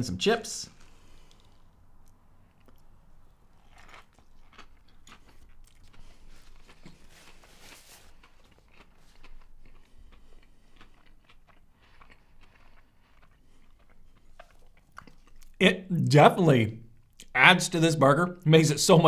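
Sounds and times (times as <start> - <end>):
person chewing: 0.8 - 15.6
crisp crunches: 3.5 - 15.5.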